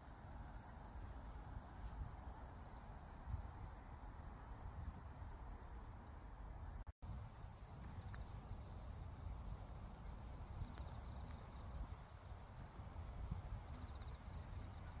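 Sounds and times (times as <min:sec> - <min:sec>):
wind buffeting microphone: 0:07.1 - 0:15.0.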